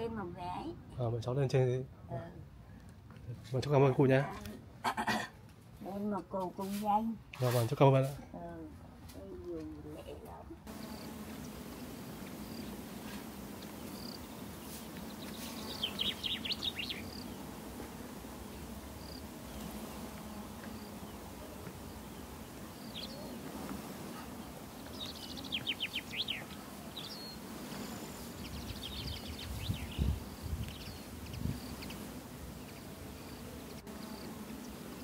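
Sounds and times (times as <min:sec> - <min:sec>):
small birds calling: 0:10.8 - 0:17.6, 0:19.0 - 0:23.5, 0:24.1 - 0:34.9
high bird trills: 0:15.1 - 0:17.4, 0:24.9 - 0:30.1.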